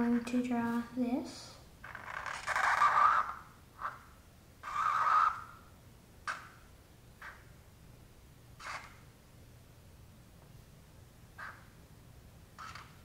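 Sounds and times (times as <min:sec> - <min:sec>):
marker scratching on paper: 0:01.9 - 0:05.6, 0:08.6 - 0:09.0, 0:12.6 - 0:13.0.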